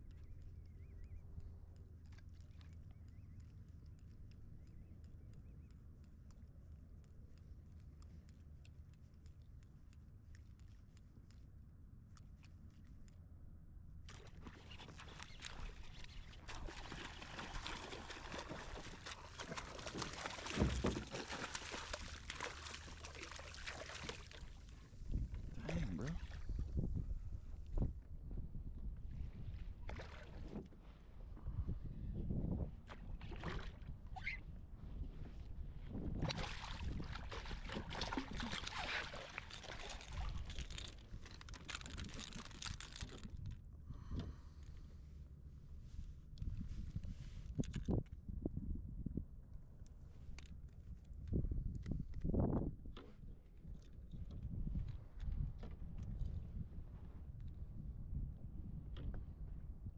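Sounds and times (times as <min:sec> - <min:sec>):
water splashing and trickling: 0:14.1 - 0:27.0, 0:29.9 - 0:30.6, 0:36.1 - 0:43.5.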